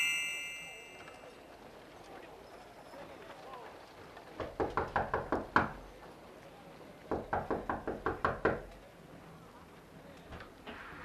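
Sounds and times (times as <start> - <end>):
knocking on door: 4.4 - 5.8, 7.1 - 8.7.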